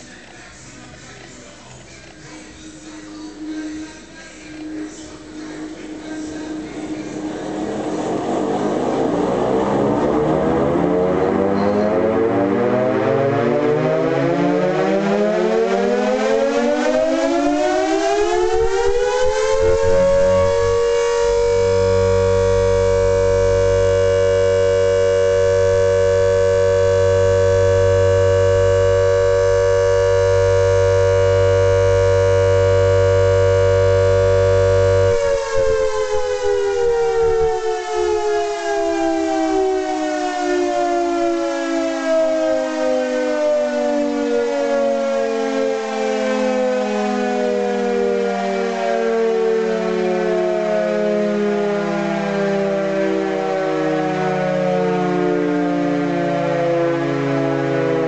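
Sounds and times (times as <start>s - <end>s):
air raid siren wailing: 2.8s - 58.0s
low motor hum: 5.4s - 14.6s, 19.2s - 37.5s.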